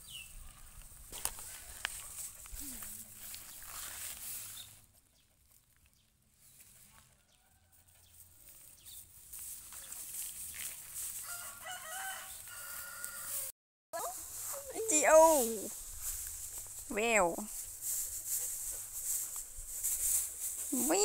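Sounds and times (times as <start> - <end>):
rooster crowing: 11.2 - 13.5.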